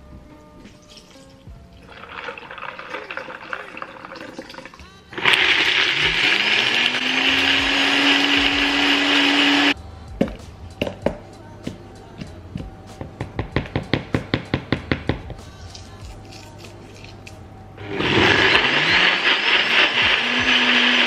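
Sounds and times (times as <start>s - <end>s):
milk pouring into cup: 1.8s - 6.2s
blender motor whining: 5.1s - 9.8s, 17.8s - 21.0s.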